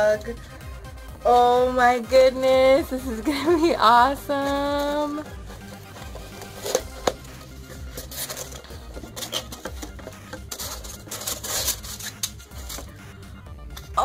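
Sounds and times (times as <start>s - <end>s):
cardboard and foam rustling: 4.4s - 13.0s
box clicks: 6.3s - 7.3s.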